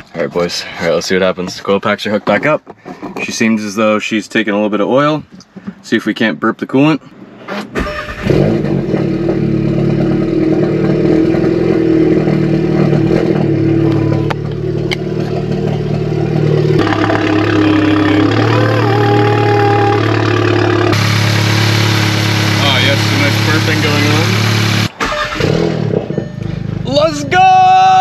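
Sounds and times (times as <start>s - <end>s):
car engine idling: 9.2s - 25.4s.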